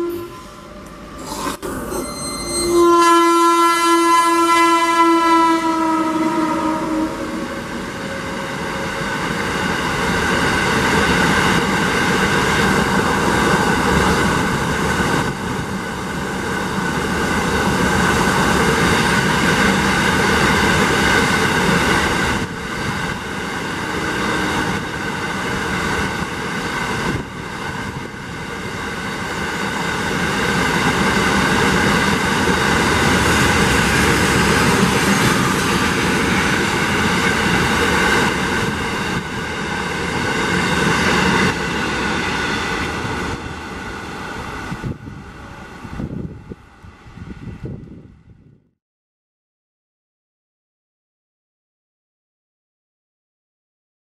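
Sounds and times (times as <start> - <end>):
held ringing tones: 0.0 - 3.3
steel wheels rumbling on rail: 0.0 - 48.5.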